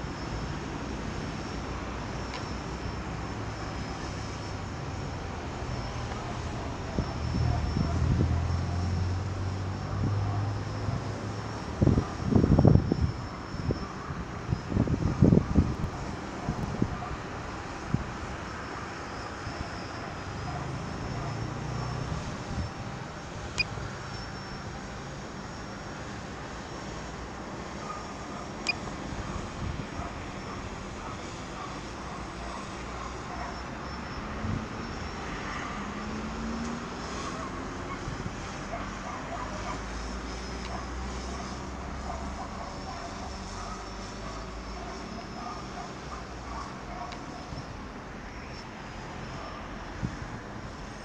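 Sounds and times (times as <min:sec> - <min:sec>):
wind buffeting microphone: 0:11.7 - 0:18.3.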